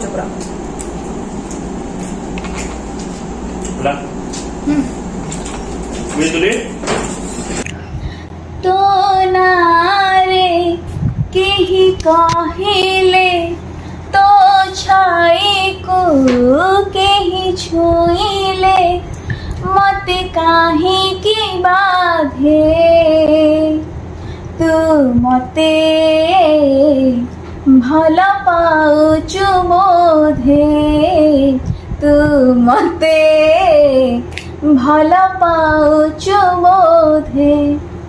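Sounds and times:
woman singing unaccompanied: 0:08.6 - 0:23.9, 0:24.6 - 0:37.9.

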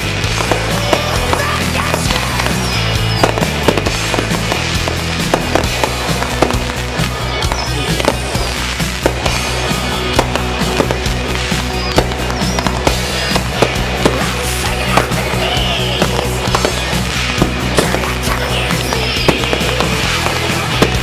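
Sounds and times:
music with bass line: 0:00.0 - 0:21.0
sharp irregular cracks: 0:16.0 - 0:21.0.

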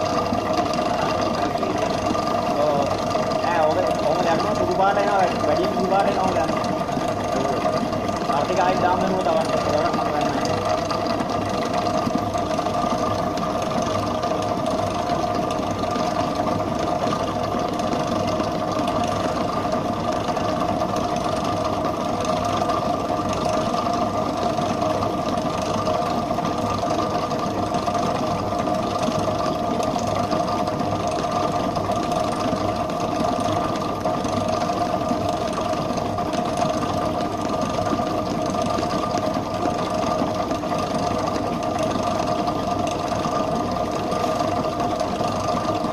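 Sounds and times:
stand mixer whirring: 0:00.0 - 0:45.9.

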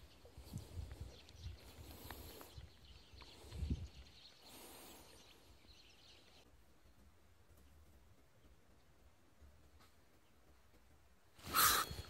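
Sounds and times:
faint bird chirps: 0:11.4 - 0:12.0.

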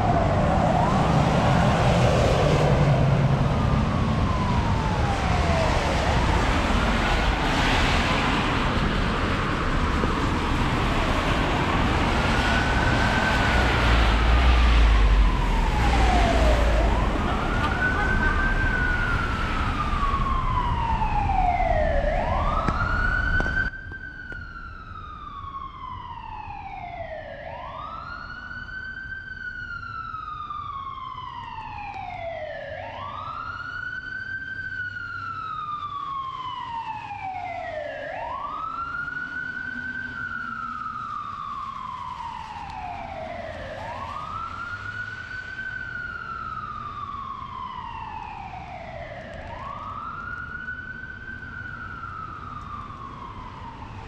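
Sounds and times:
emergency siren wailing: 0:00.0 - 0:54.0
faint street hiss: 0:33.2 - 0:54.0.

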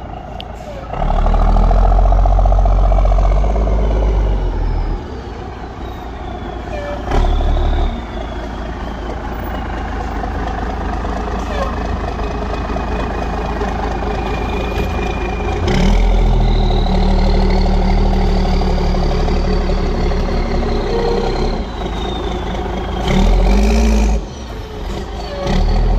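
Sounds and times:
engine running and revving: 0:00.9 - 0:05.3, 0:13.6 - 0:25.9.

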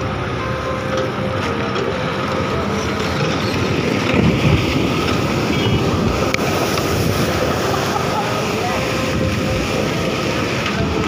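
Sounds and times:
rushing river water: 0:00.0 - 0:11.0
wind on microphone: 0:02.5 - 0:11.0.

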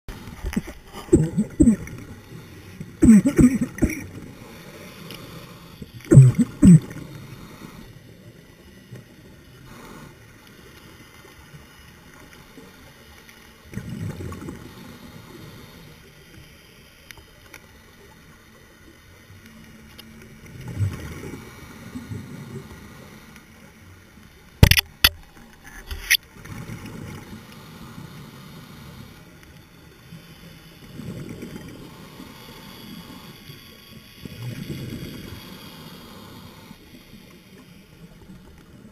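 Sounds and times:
underwater bubbles gurgling: 0:00.1 - 0:04.4, 0:05.8 - 0:07.2
sharp clicks: 0:24.6 - 0:25.3.

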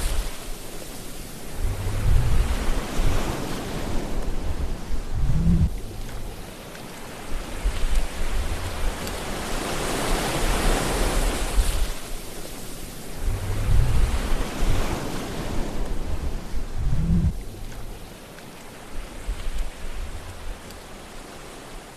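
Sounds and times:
surf rushing: 0:00.0 - 0:18.0
wind buffeting microphone: 0:00.0 - 0:21.6.

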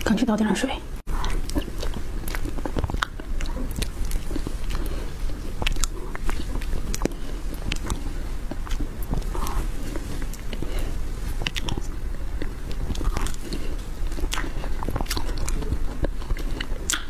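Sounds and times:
steady low hum: 0:00.0 - 0:17.0
mouth clicks: 0:11.4 - 0:17.0.

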